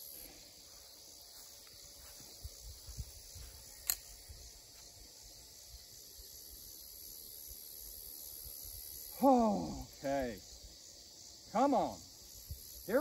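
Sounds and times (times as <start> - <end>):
crickets chirring: 0.0 - 13.0
wind rumble on microphone: 2.4 - 3.6
sharp click: 3.8 - 4.2.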